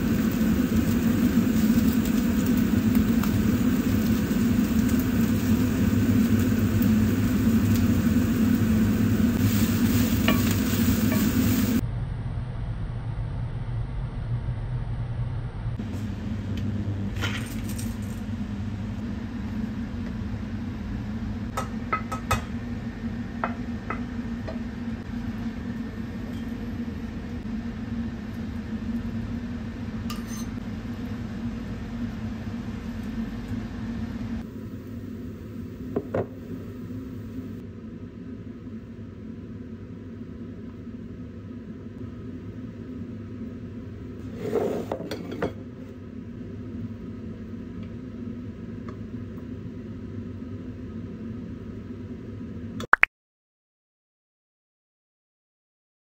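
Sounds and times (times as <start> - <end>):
steady low hum: 0.0 - 44.4
dishes and utensils clinking: 30.1 - 30.6.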